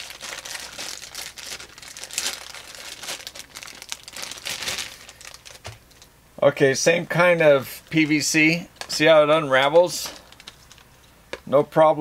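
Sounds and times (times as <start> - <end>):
plastic bag crinkling: 0.0 - 6.1, 9.9 - 11.0.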